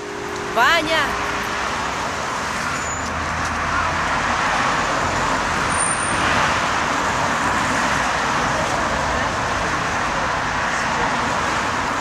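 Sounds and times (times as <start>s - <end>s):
cars driving past: 0.0s - 12.0s.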